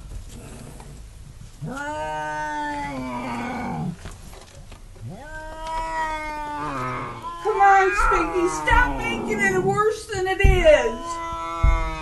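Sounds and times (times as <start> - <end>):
cat yowling: 5.0 - 9.7, 10.7 - 12.0.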